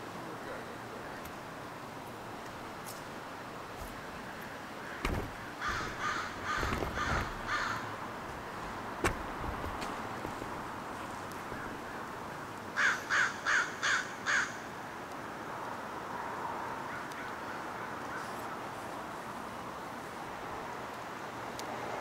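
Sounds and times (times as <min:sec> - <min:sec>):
crow cawing: 0:04.8 - 0:08.0, 0:12.8 - 0:14.6.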